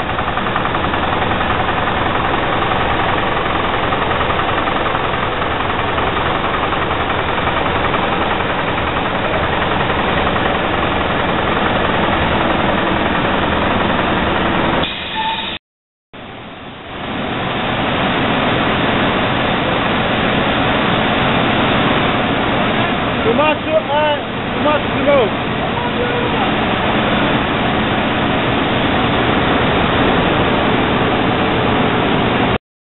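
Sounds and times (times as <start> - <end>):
needle-punching loom running: 0.0 - 14.8, 20.7 - 30.8.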